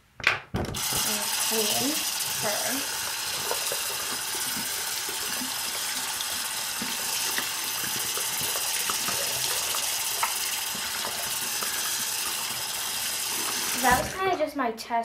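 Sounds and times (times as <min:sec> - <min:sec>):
faucet running: 0:00.8 - 0:14.4
water splashing over plastic toy: 0:00.8 - 0:14.4.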